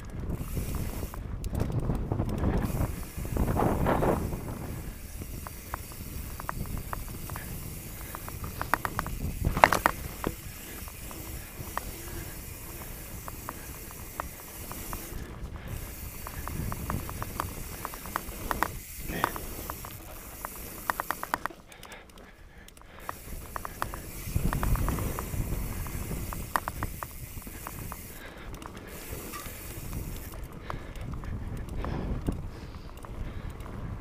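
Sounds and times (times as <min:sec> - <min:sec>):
bicycle freewheel ticking: 0:00.0 - 0:34.0
tyres rumbling over gravel: 0:02.6 - 0:21.6.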